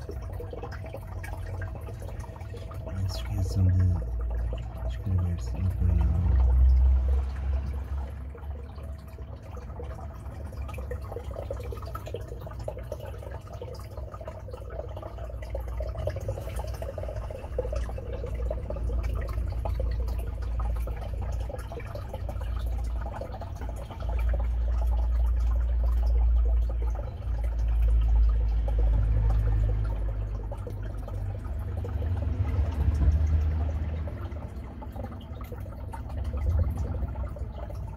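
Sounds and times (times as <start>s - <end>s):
water pouring into tank: 0.0s - 37.9s.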